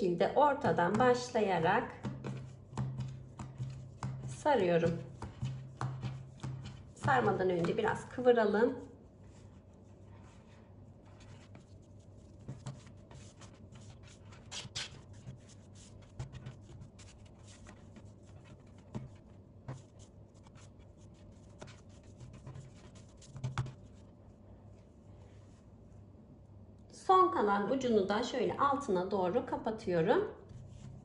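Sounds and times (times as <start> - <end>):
hands rubbing dough: 0.6 - 24.2, 30.5 - 31.0.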